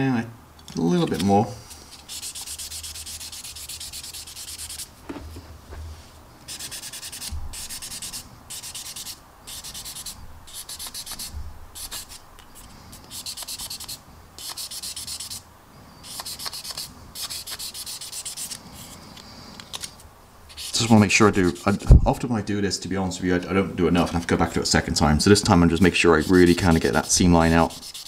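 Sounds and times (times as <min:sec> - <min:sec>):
sanding stick rubbing plastic: 0:01.0 - 0:04.9, 0:06.5 - 0:15.4, 0:16.0 - 0:19.0, 0:20.5 - 0:21.8, 0:25.4 - 0:28.0.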